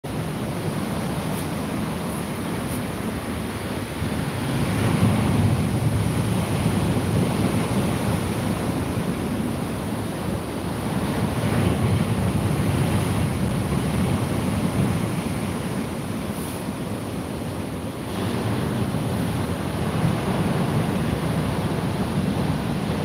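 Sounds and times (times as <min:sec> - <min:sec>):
wind buffeting microphone: 0:00.1 - 0:23.0.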